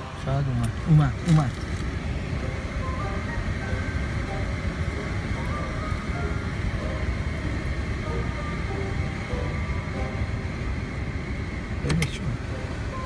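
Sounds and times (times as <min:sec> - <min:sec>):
car cabin rumble: 0:00.0 - 0:13.0.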